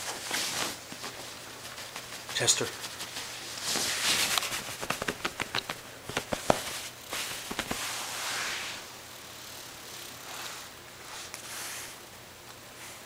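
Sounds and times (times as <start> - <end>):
bedsheet rustling: 0.0 - 8.9.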